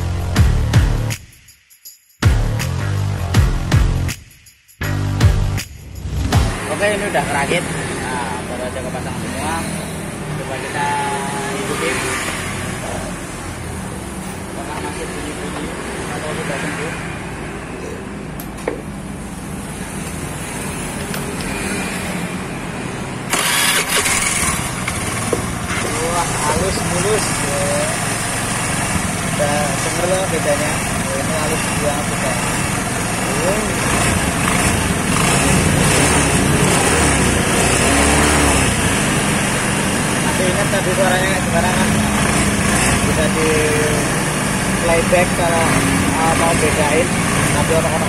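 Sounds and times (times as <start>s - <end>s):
scooter engine running: 23.3s - 48.0s.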